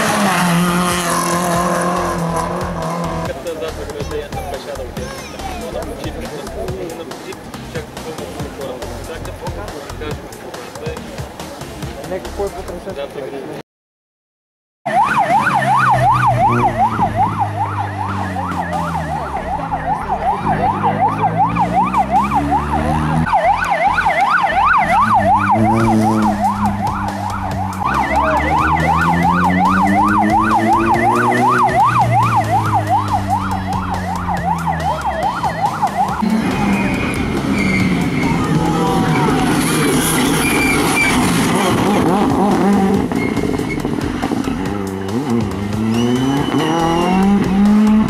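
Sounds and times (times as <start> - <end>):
vehicle engine accelerating: 0.0 - 4.9, 15.2 - 48.0
yelp siren: 14.9 - 39.6, 45.8 - 47.6.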